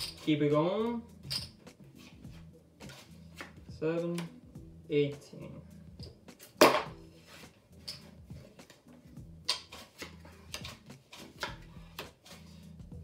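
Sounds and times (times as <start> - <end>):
chips and cards clicking: 1.2 - 1.7, 9.4 - 12.6.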